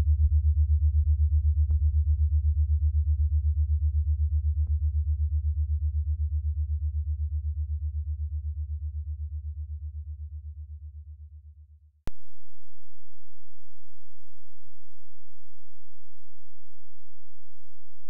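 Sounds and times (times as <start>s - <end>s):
low throbbing electrical hum: 12.1s - 18.0s.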